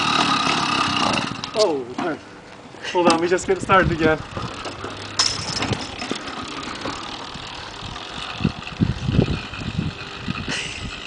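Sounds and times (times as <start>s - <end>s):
two-stroke engine coughing: 10.2s - 11.0s.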